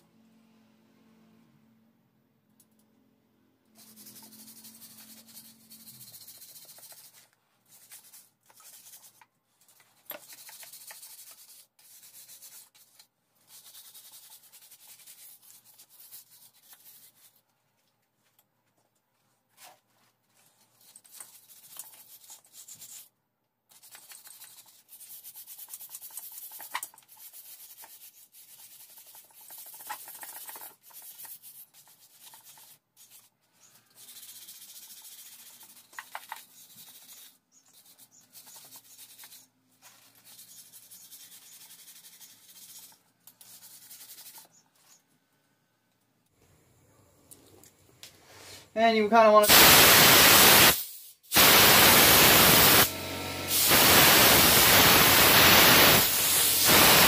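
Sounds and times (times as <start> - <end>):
wire brush scrubbing metal: 3.8 - 9.2, 49.4 - 57.0.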